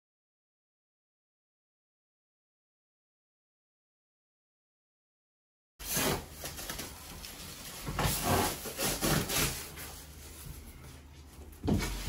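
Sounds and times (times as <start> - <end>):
plastic wrap rustling and rubbing: 5.8 - 12.0.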